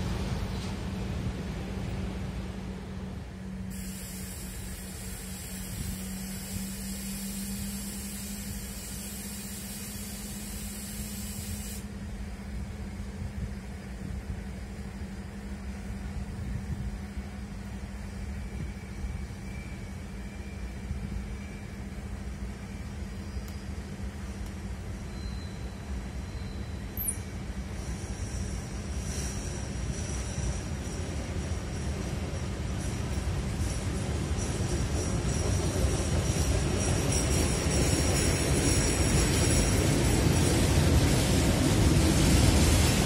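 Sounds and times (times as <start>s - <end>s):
faint high whine: 3.2s - 31.0s
high hiss: 3.6s - 12.0s.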